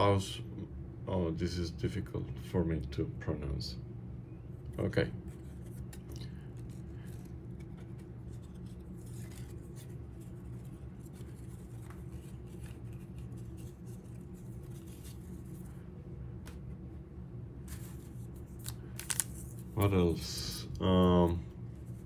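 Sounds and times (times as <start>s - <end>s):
low background hum: 0.0s - 22.0s
cards rustling and clicking: 4.7s - 16.8s, 17.6s - 22.0s.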